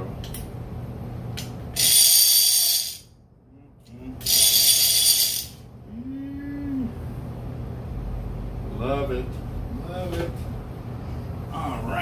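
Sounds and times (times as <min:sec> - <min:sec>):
fishing reel ratchet buzzing: 0:01.8 - 0:03.1, 0:04.2 - 0:05.6.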